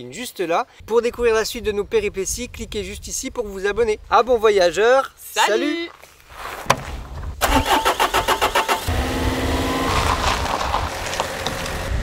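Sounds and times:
engine cranking and starting: 7.4 - 9.2
engine revving: 7.4 - 12.0.

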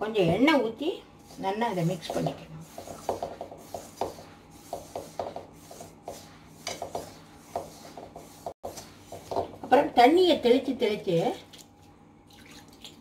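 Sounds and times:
fingers rubbing grainy mix in bowl: 1.2 - 9.7.

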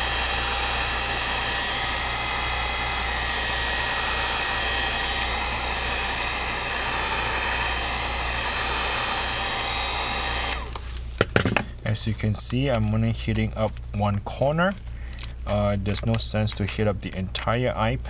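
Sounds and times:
heat gun blowing with hum: 0.0 - 14.0.

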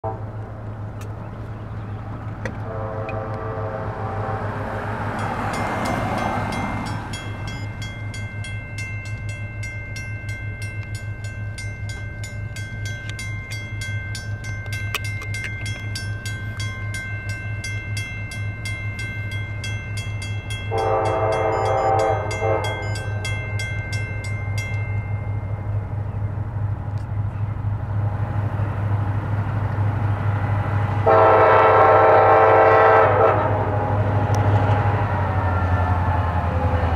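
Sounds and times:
locomotive horn blasts: 0.0 - 0.4, 2.5 - 7.0, 20.6 - 23.3, 31.0 - 34.0
locomotive engine hum: 0.0 - 36.9
bell ringing rapidly: 5.2 - 25.5.

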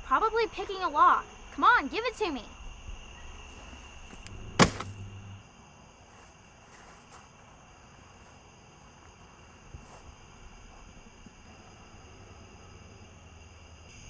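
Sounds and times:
crickets chirping: 0.0 - 14.0
loud sharp crack: 4.5 - 5.1.

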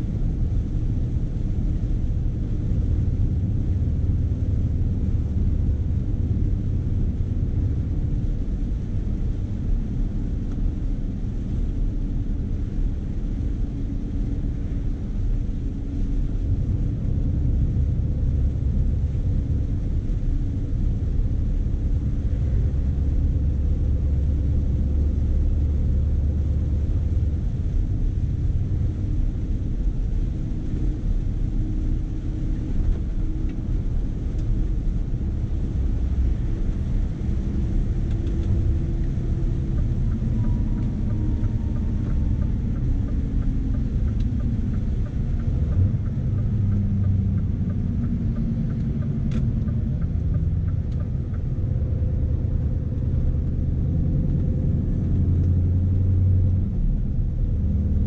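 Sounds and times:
truck diesel engine rumbling: 12.3 - 58.0.

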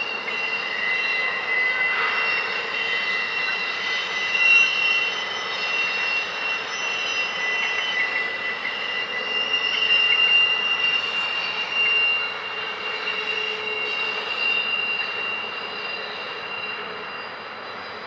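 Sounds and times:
diesel locomotive passing: 0.0 - 9.9
high-pitched engine whine: 0.0 - 18.0.

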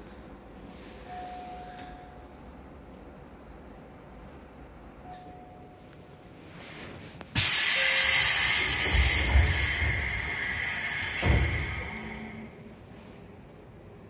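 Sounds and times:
air hiss of train doors: 7.3 - 13.2
door thud: 8.6 - 12.4.

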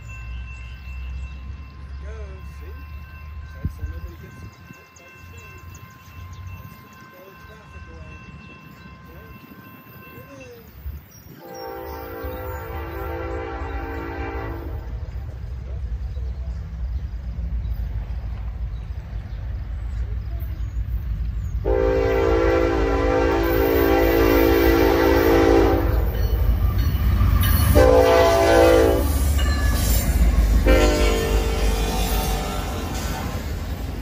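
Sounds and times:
low rumble of train: 0.0 - 34.0
locomotive air horn blasts: 11.4 - 15.0, 21.6 - 26.1, 27.6 - 29.2, 30.6 - 33.4.

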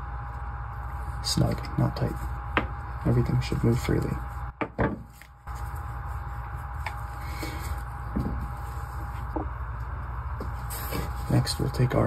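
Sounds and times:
tools knocking on workbench: 4.6 - 5.1.

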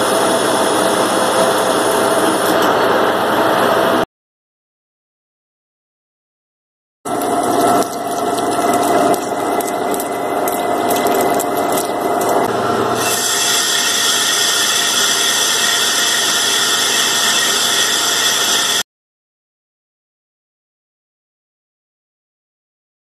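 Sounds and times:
lathe cutting metal: 0.0 - 4.0, 7.1 - 18.8.

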